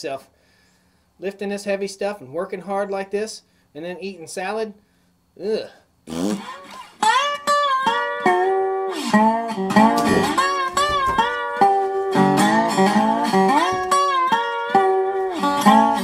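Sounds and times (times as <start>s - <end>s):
bluesy slide guitar music: 6.1s - 16.0s.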